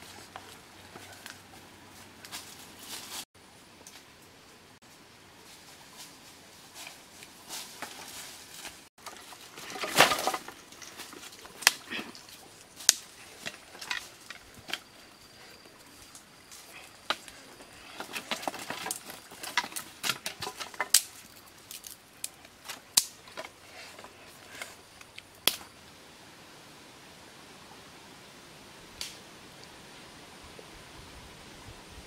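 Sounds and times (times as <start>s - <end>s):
leaves and dirt brushed by hand: 0.0s - 4.2s, 4.8s - 26.0s
dry sticks clicking and knocking: 9.0s - 15.0s, 16.0s - 25.7s.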